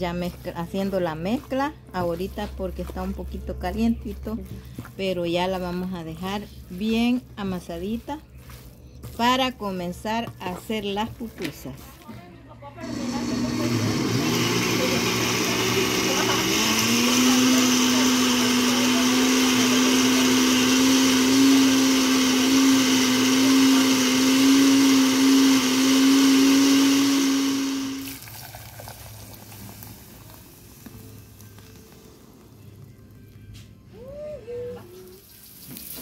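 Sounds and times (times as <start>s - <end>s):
blender motor whine: 12.8s - 28.2s.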